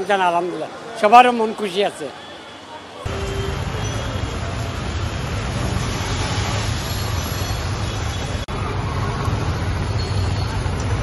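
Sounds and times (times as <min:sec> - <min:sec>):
tyres on wet road: 0:03.0 - 0:11.0.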